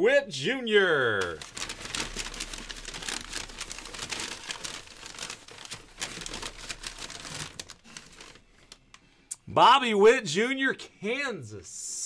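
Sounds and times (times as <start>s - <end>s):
plastic crinkling and clicking: 1.2s - 9.1s.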